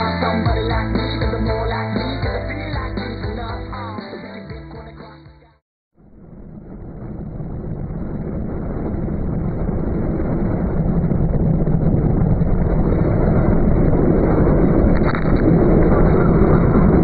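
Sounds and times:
strong wind buffeting microphone: 6.2s - 17.0s.

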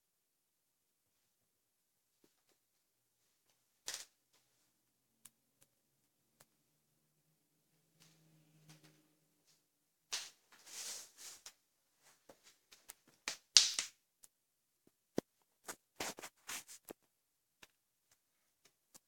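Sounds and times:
rustling scrapes: 10.6s - 11.5s, 15.7s - 16.9s.

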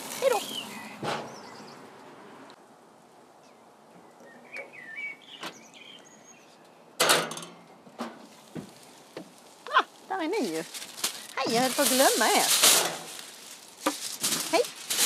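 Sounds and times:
birds chirping: 0.0s - 2.6s, 3.4s - 8.0s
grill lid metal clunk: 7.0s - 7.6s.

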